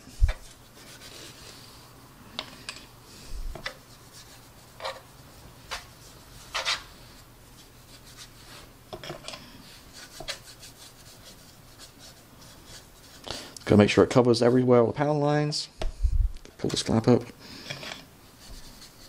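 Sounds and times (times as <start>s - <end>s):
brush strokes on plastic: 0.0s - 1.9s, 3.5s - 8.8s, 9.6s - 13.8s, 18.2s - 19.0s.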